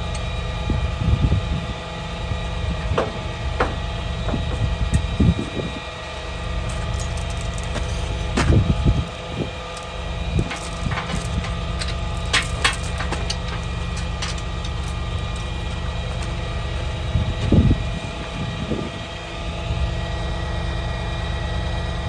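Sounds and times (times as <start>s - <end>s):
truck engine idling: 5.9s - 21.3s
metal debris clattering: 10.4s - 16.6s.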